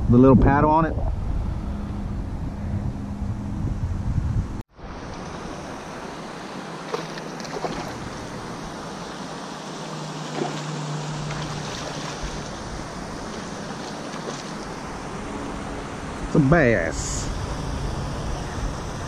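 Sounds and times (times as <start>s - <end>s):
wind: 0.0s - 19.0s
creek water rushing: 4.7s - 16.9s
fish splashing at surface: 6.8s - 8.3s, 10.2s - 14.6s.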